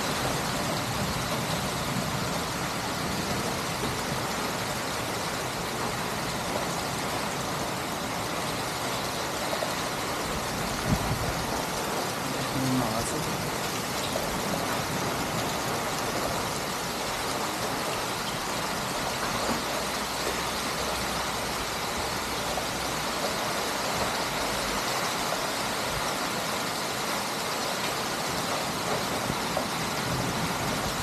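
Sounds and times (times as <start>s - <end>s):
heavy rain on pavement: 0.0s - 31.0s.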